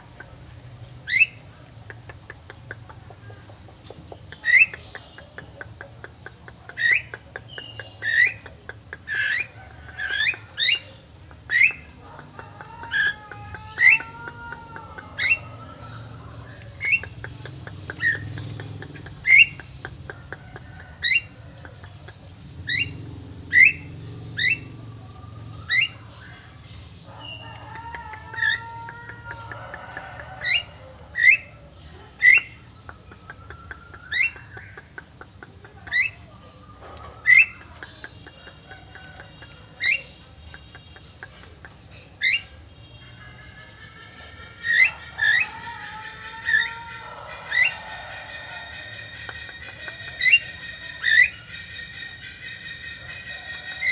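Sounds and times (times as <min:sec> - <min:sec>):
myna calling: 0:06.7 - 0:18.4.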